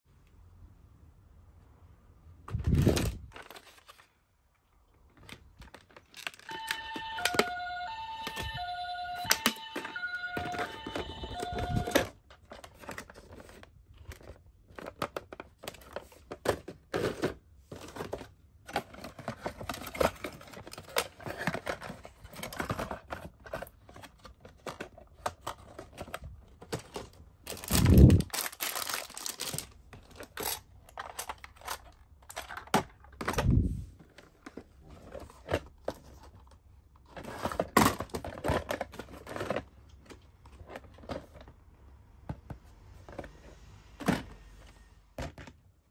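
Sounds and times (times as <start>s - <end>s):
packaging rustling and crinkling: 2.5s - 4.2s, 5.1s - 6.6s, 9.2s - 41.6s.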